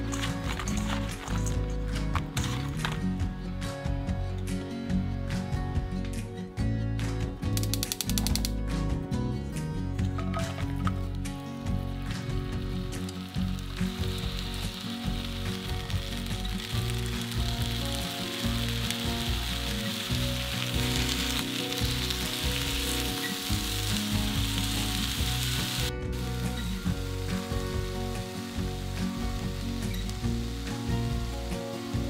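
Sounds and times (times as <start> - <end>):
food sizzling in oil: 12.1 - 32.0.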